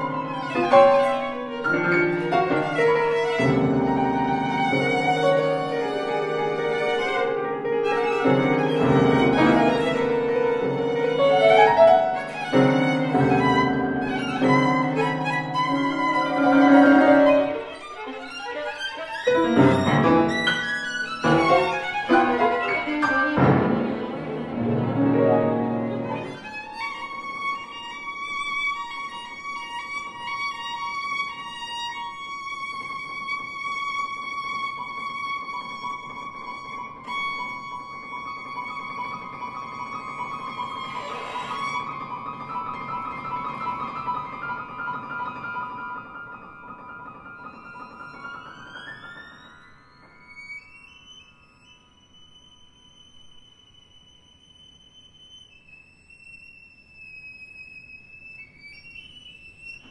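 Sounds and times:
piano chords: 0.0 - 29.8, 36.1 - 50.6
violin: 0.0 - 59.9.

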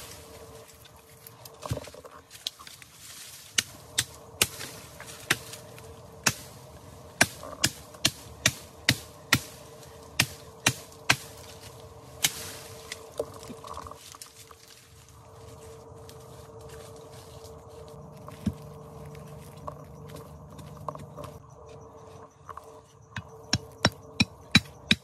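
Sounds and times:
machete chopping sapling: 3.5 - 6.6, 7.2 - 13.1.

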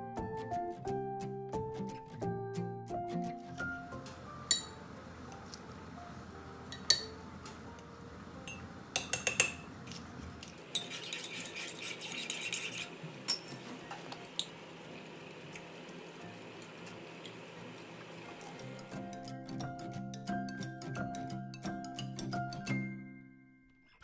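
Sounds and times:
teaspoon clinking against mugs: 4.5 - 4.8, 6.7 - 7.2, 8.5 - 9.7, 10.7 - 13.7.

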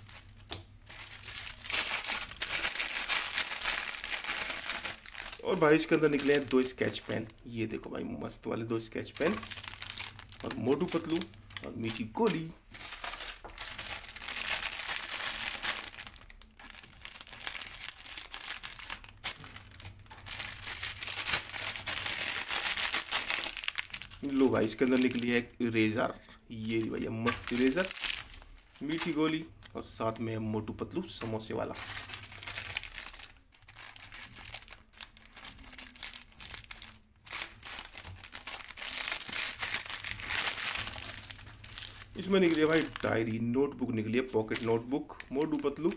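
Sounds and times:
plastic packet crinkling: 0.0 - 8.1, 8.8 - 30.2, 31.0 - 45.9.

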